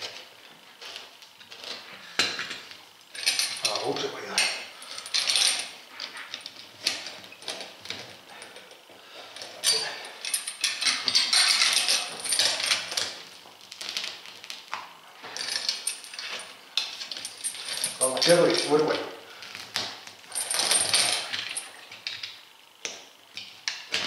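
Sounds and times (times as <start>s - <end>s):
metal pliers and chain clinking: 3.1s - 7.7s, 9.4s - 13.2s, 15.4s - 19.0s, 20.3s - 22.3s.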